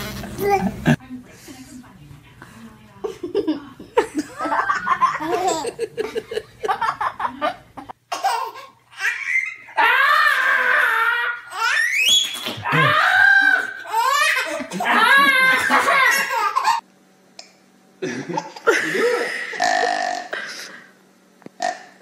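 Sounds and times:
man laughing: 0:03.3 - 0:07.6, 0:14.5 - 0:16.4, 0:18.0 - 0:19.9
baby laughing: 0:04.9 - 0:05.9, 0:08.1 - 0:09.6, 0:13.5 - 0:16.8.

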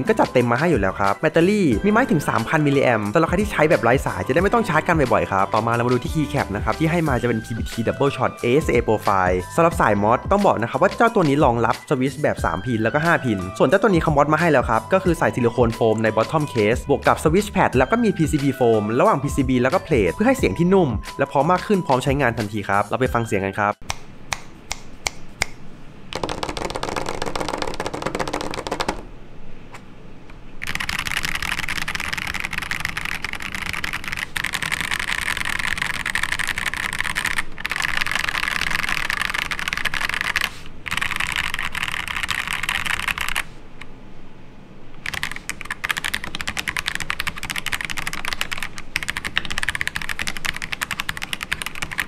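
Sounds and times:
mechanical keyboard typing: 0:26.1 - 0:29.1, 0:30.6 - 0:43.5, 0:45.0 - 0:52.0.

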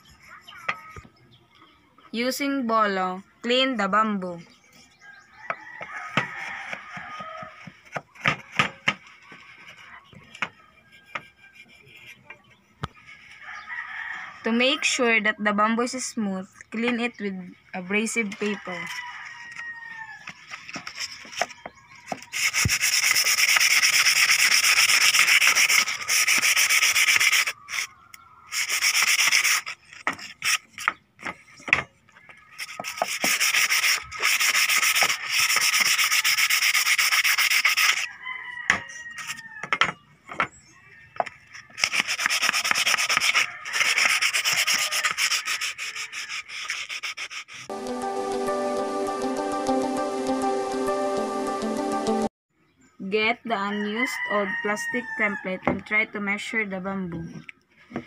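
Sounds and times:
sandpaper rubbing on bamboo: 0:06.3 - 0:12.2, 0:20.4 - 0:27.9, 0:28.5 - 0:31.4, 0:32.5 - 0:38.1, 0:41.5 - 0:47.7.

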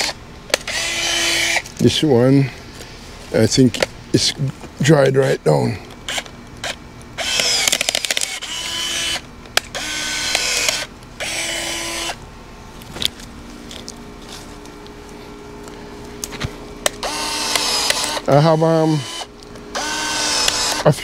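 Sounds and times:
twigs and leaves rustling: 0:12.7 - 0:16.8
pruning shears clicking and snipping: 0:16.2 - 0:19.6, 0:20.4 - 0:21.0.

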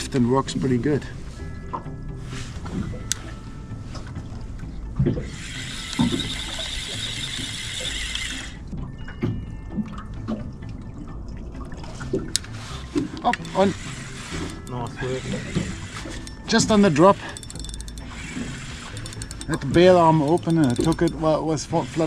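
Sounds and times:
spinning reel whirring: 0:05.2 - 0:08.6, 0:13.2 - 0:22.0.

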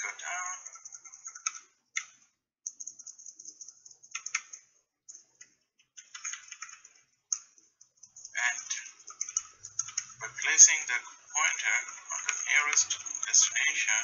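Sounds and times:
quick clicking and tapping: 0:02.9 - 0:10.2
steady high hiss: 0:08.2 - 0:14.0.

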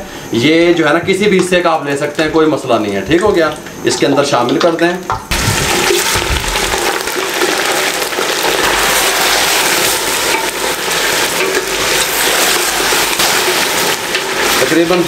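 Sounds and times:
meat sizzling in hot oil: 0:00.5 - 0:15.0
ladle stirring in a pot: 0:05.6 - 0:15.0.

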